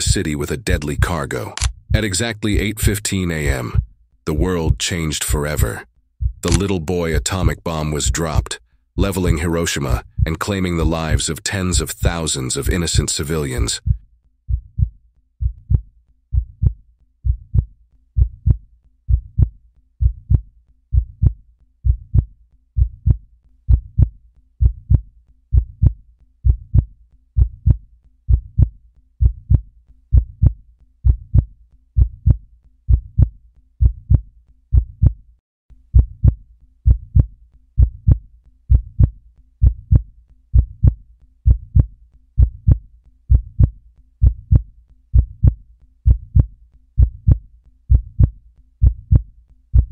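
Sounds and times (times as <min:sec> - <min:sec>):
slow heartbeat thumps: 0:00.0 - 0:12.2, 0:13.8 - 0:35.3, 0:35.9 - 0:49.9.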